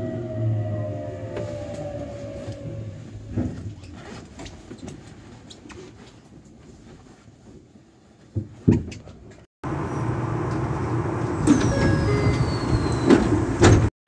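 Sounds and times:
electric train rumbling: 0.0s - 3.4s, 9.7s - 13.9s
high tone falling in pitch: 11.4s - 13.1s.

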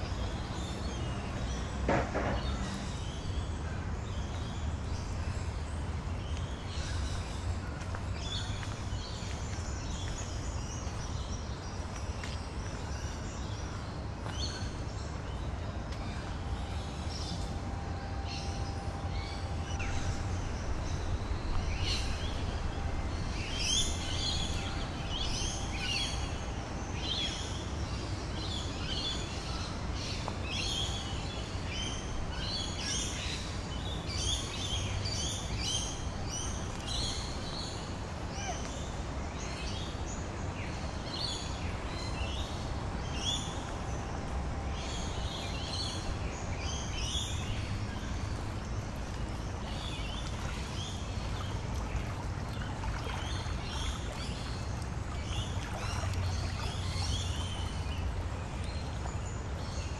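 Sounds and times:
low background rumble: 0.0s - 32.6s.

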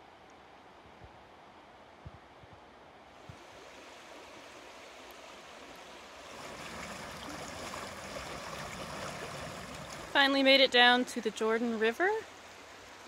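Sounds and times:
river water rushing: 3.1s - 13.0s.

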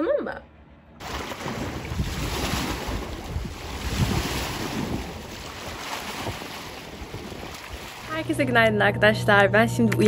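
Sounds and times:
wind buffeting microphone: 1.0s - 8.3s.

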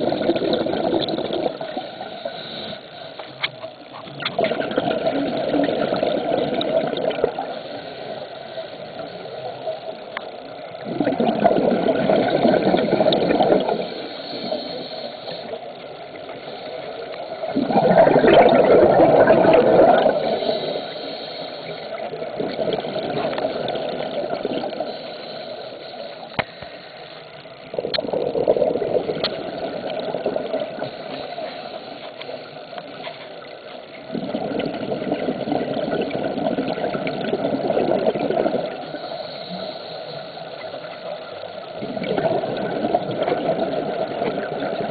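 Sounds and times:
exhaled bubbles underwater: 0.0s - 2.8s, 3.9s - 8.2s, 8.8s - 25.7s, 27.6s - 44.9s
underwater water noise: 0.0s - 44.9s.

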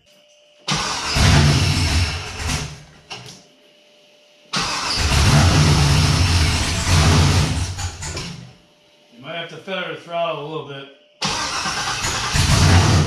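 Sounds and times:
engine starting and running: 0.7s - 3.3s, 4.5s - 8.4s, 11.2s - 13.0s.

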